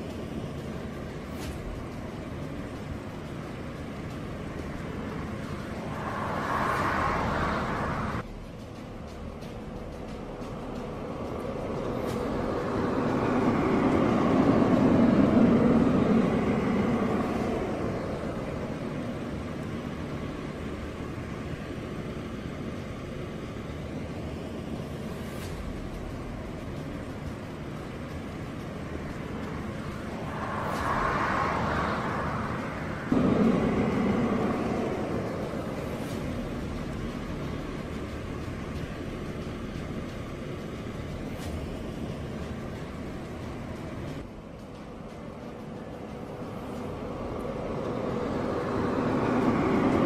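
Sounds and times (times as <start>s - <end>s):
rushing sound: 0.0s - 50.0s
steady outdoor rumble: 0.0s - 50.0s
passing vehicle rushing: 4.9s - 8.3s, 27.7s - 38.9s.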